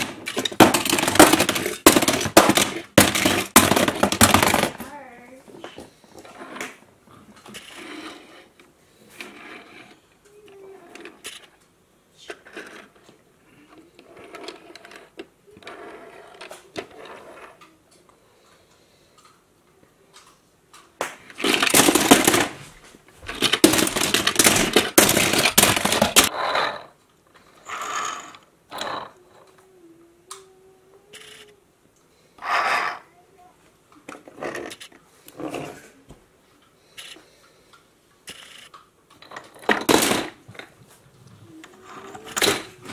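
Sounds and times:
toy cars clicking and scraping: 0:00.0 - 0:04.9, 0:05.6 - 0:19.4, 0:20.1 - 0:22.6, 0:23.3 - 0:31.6, 0:32.3 - 0:33.2, 0:33.9 - 0:36.0, 0:36.6 - 0:40.7, 0:41.3 - 0:42.9
toys rattling in a plastic bin: 0:00.0 - 0:05.0, 0:21.3 - 0:22.7, 0:23.3 - 0:26.3, 0:38.3 - 0:40.7, 0:41.7 - 0:42.9.

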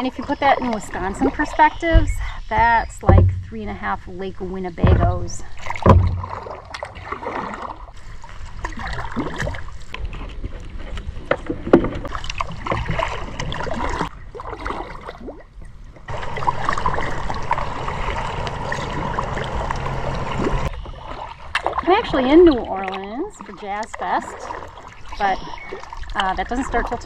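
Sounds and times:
paddle strokes in water: 0:04.7 - 0:27.0
steady hum: 0:16.1 - 0:20.7.

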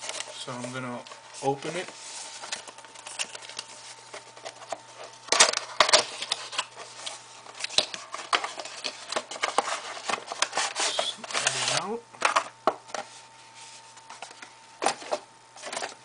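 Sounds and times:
plastic packaging crackling: 0:00.0 - 0:11.8.

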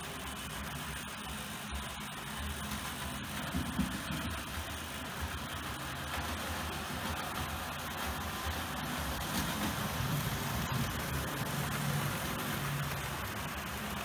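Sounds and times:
model train motor and wheels rumbling: 0:00.0 - 0:14.0.

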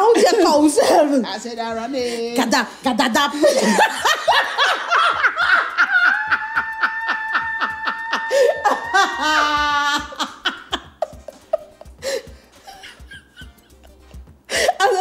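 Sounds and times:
women laughing: 0:03.3 - 0:13.6.

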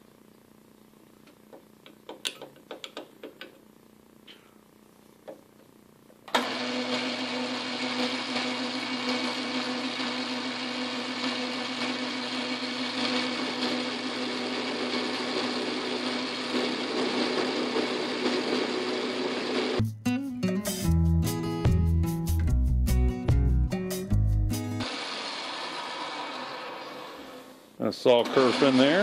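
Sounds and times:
lathe whine: 0:06.3 - 0:19.8, 0:24.8 - 0:29.0
metal lathe motor humming: 0:06.4 - 0:19.8, 0:28.1 - 0:29.0.

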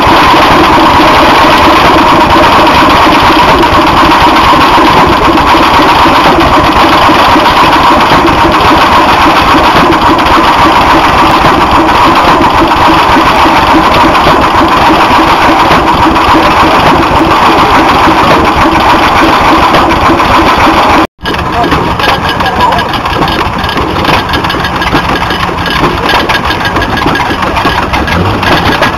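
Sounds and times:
stationary gas engine running: 0:00.0 - 0:28.9.

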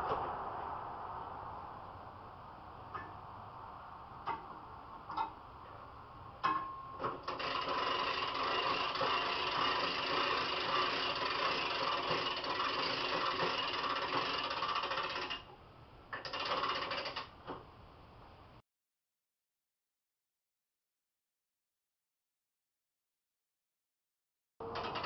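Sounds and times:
winch gears whirring: 0:07.1 - 0:15.5, 0:16.1 - 0:17.4, 0:24.6 - 0:25.0.

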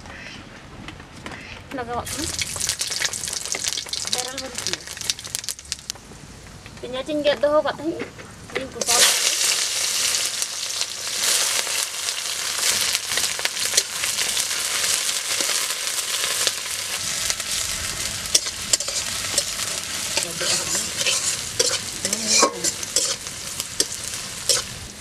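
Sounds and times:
onions sizzling in hot oil: 0:02.1 - 0:05.9, 0:08.8 - 0:25.0
metal spatula scraping a pan: 0:17.2 - 0:24.9.

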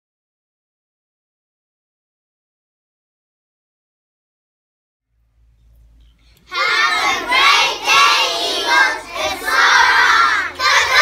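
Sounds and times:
children shouting in unison: 0:06.5 - 0:11.0.

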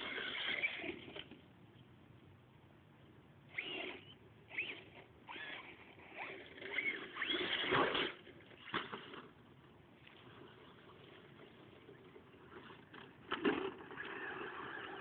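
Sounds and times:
toy truck motor whining: 0:00.0 - 0:01.3, 0:03.5 - 0:08.9, 0:13.8 - 0:15.0.

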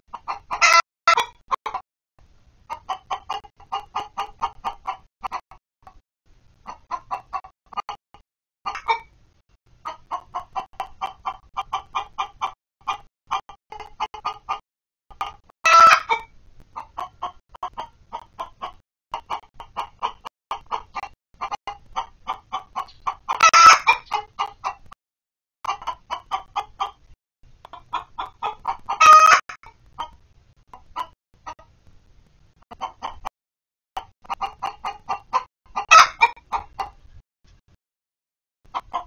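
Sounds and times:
hen squawks: 0:00.1 - 0:01.4, 0:15.2 - 0:19.4, 0:20.0 - 0:24.8
hens clucking: 0:00.1 - 0:01.8, 0:02.6 - 0:08.0, 0:08.6 - 0:09.2, 0:09.8 - 0:25.0, 0:25.6 - 0:31.7, 0:32.7 - 0:33.3, 0:34.0 - 0:37.1, 0:38.7 - 0:39.0.

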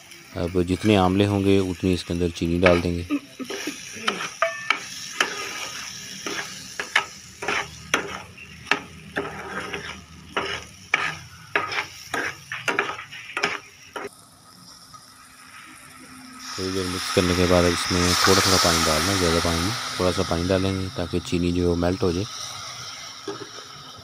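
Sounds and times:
faint sizzle: 0:00.0 - 0:24.0
metal spoon scraping a pan: 0:02.5 - 0:14.1.

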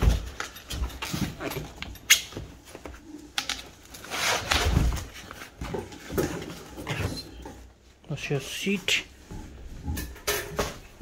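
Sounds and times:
packaging rustling and scraping: 0:00.0 - 0:07.2.

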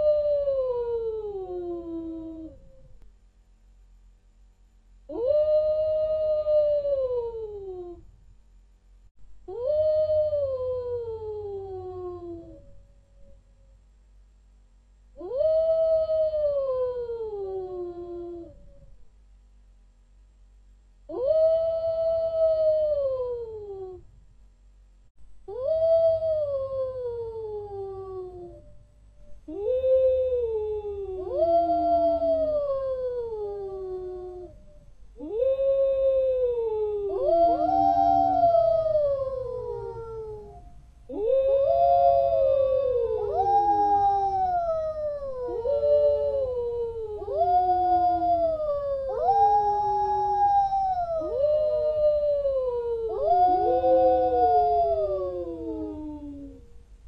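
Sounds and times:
wolves howling: 0:29.5 - 0:56.6.

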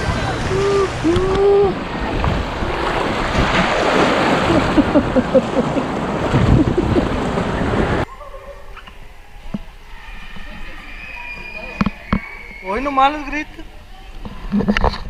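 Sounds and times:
rushing splashing water: 0:00.0 - 0:08.1.

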